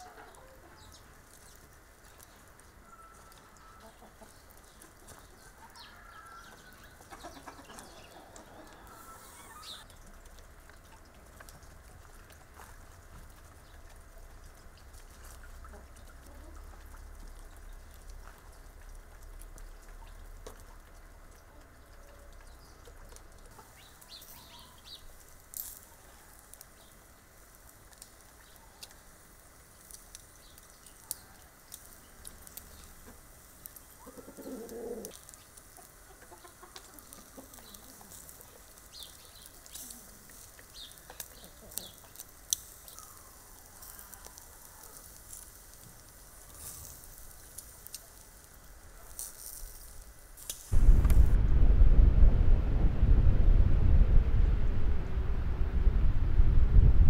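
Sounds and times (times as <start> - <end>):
chickens clucking: 0.0 - 1.2, 2.7 - 10.0, 15.2 - 17.1, 32.7 - 38.6, 39.5 - 42.2
kebab sizzling over charcoal: 0.0 - 52.0.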